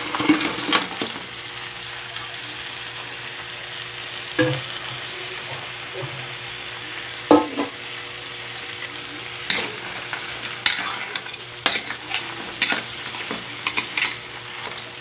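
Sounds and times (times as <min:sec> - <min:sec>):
crabs sizzling in hot oil: 0:00.0 - 0:15.0
utensil knocking and scraping wok: 0:04.4 - 0:04.7, 0:07.3 - 0:07.8, 0:09.4 - 0:15.0.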